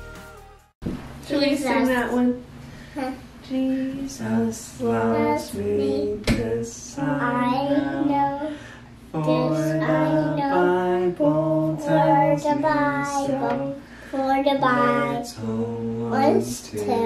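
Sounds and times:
woman singing slow melody: 0:03.4 - 0:08.5.

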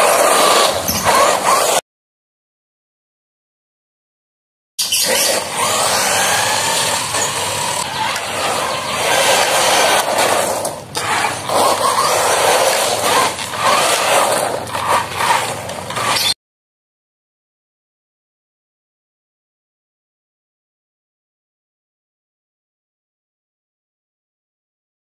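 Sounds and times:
electric motor whining: 0:05.0 - 0:16.4.

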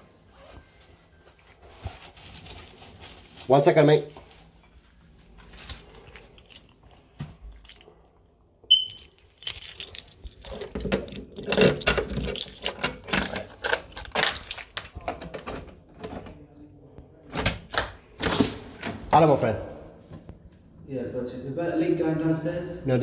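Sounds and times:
keys jangling: 0:01.8 - 0:04.7, 0:05.4 - 0:08.1, 0:08.7 - 0:15.1
lock clicks and chain rattling: 0:05.4 - 0:08.1, 0:08.7 - 0:15.5.

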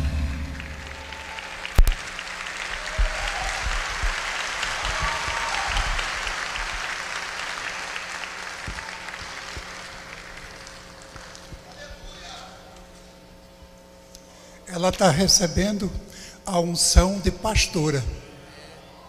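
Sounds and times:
congregation applauding: 0:00.0 - 0:12.5.

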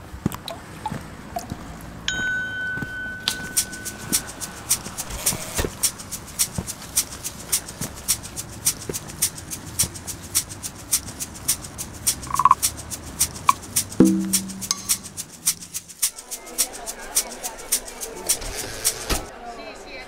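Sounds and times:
shaker-like percussion ticks: 0:03.2 - 0:19.1
short beeps: 0:12.3 - 0:12.6.

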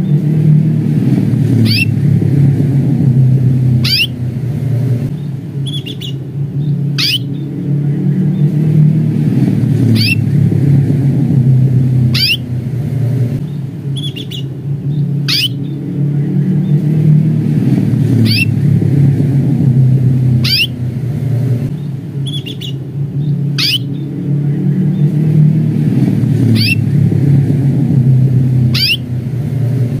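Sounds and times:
low rumble: 0:00.0 - 0:30.0
canary chirping calls: 0:01.6 - 0:02.0, 0:03.8 - 0:04.2, 0:05.2 - 0:07.5, 0:09.9 - 0:10.3, 0:12.0 - 0:12.6, 0:13.4 - 0:15.8, 0:18.2 - 0:18.6, 0:20.4 - 0:20.8, 0:21.8 - 0:24.1, 0:26.5 - 0:26.9, 0:28.7 - 0:29.1.

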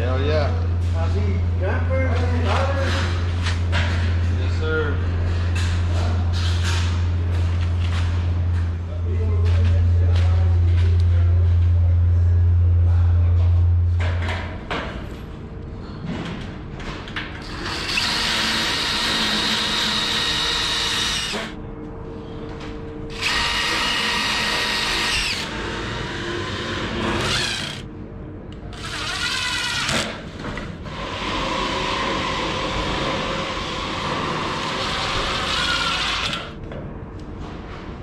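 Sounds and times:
cordless drill running: 0:17.4 - 0:21.6, 0:23.1 - 0:27.8, 0:28.8 - 0:30.0.

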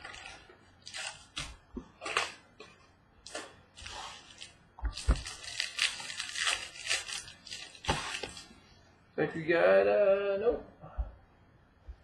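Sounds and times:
foil wrappers crinkling: 0:00.0 - 0:08.5.

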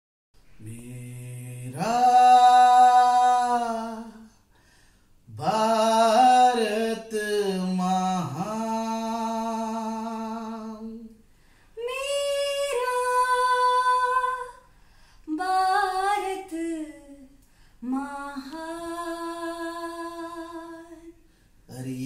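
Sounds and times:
woman singing: 0:11.8 - 0:14.7, 0:15.3 - 0:21.2.

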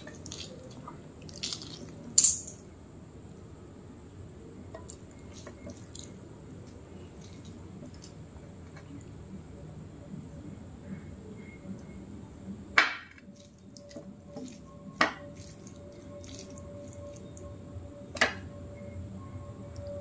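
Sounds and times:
hand squishing rice and curry: 0:00.0 - 0:02.0, 0:04.9 - 0:08.2, 0:13.4 - 0:17.4.

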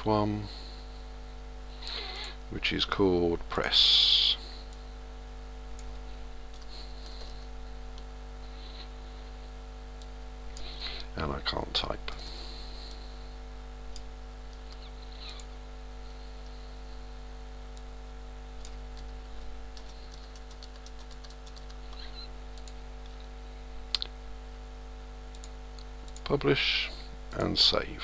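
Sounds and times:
electrical hum: 0:00.0 - 0:28.0
keyboard typing: 0:18.6 - 0:23.2.

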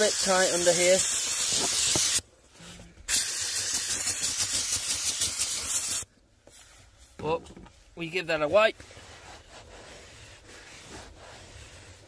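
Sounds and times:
steam cleaner hissing: 0:00.0 - 0:02.2, 0:03.1 - 0:06.1.

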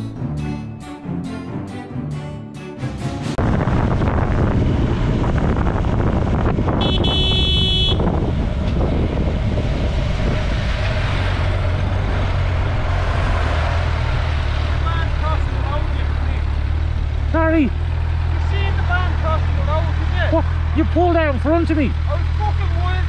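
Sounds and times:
road and wind noise: 0:03.3 - 0:23.0
motorcycle engine running: 0:03.4 - 0:10.4, 0:14.7 - 0:23.0
vehicle horn: 0:06.8 - 0:08.2.

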